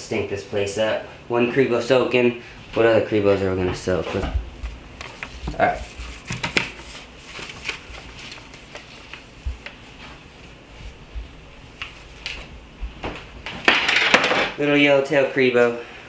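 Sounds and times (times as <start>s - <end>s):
rustling: 3.8s - 14.2s.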